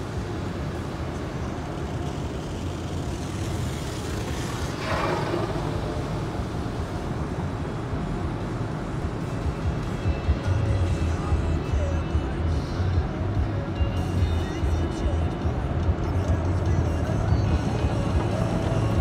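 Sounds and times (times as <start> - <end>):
low rumble: 4.6 - 13.6.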